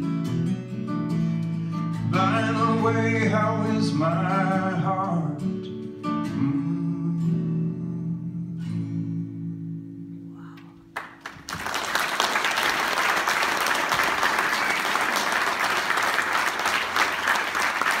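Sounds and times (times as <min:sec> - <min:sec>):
acoustic guitar chord ringing: 0:00.0 - 0:10.6
audience applause: 0:11.0 - 0:18.0.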